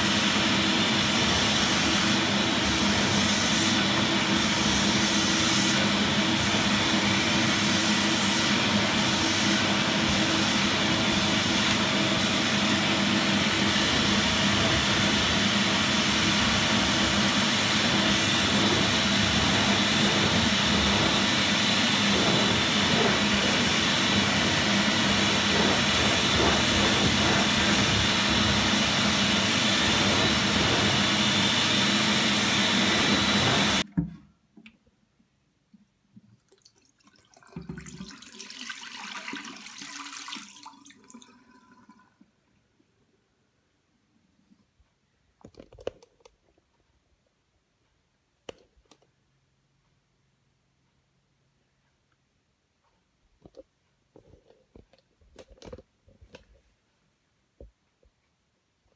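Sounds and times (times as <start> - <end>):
vacuum cleaner motor humming: 0.0 - 33.9.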